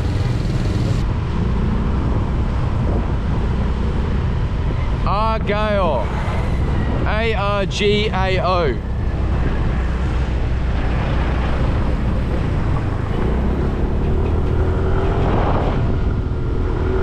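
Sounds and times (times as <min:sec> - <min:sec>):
motorbike engine running: 0:00.0 - 0:01.1
wind rushing over microphone: 0:00.0 - 0:17.0.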